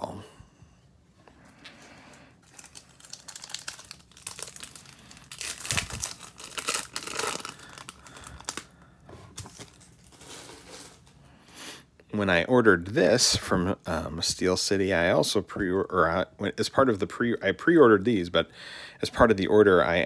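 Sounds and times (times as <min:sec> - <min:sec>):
foil wrapper crinkling and tearing: 0:02.4 - 0:11.2.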